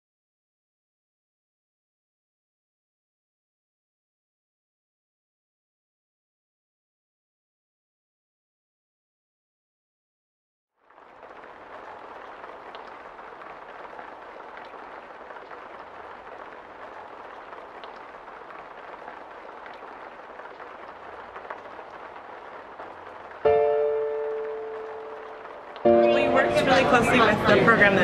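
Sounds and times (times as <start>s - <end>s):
rain on a window: 10.8s - 25.9s.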